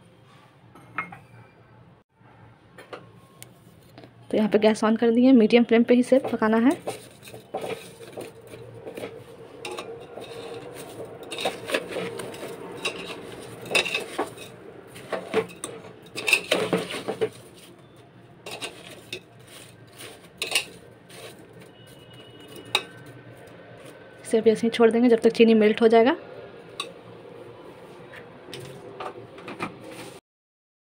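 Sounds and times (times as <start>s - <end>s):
metal spoon scraping a pot: 6.1s - 24.0s, 26.7s - 27.0s, 29.4s - 30.2s.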